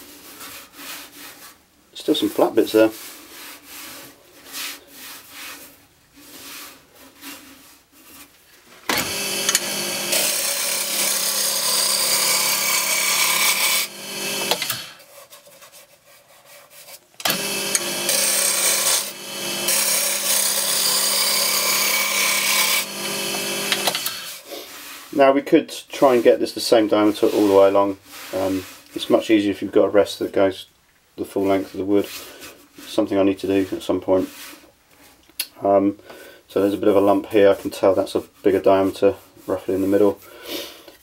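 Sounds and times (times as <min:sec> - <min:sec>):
lathe motor hum: 0:08.9 - 0:14.9, 0:17.2 - 0:24.4
gouge shaving wood on lathe: 0:09.0 - 0:15.0, 0:17.3 - 0:24.4.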